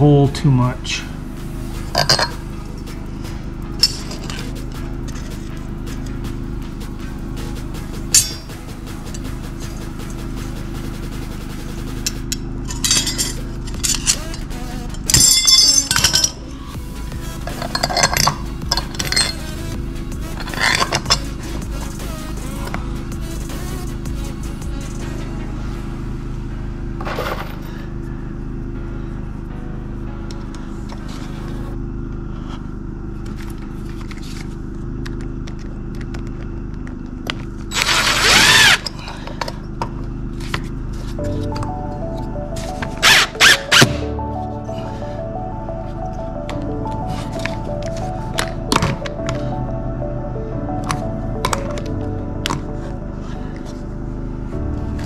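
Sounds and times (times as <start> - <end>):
background music: 0.0 - 27.0, 27.9 - 31.8, 41.2 - 55.0
metal pieces clinking on concrete: 2.0 - 2.4, 12.7 - 16.4, 17.5 - 19.4.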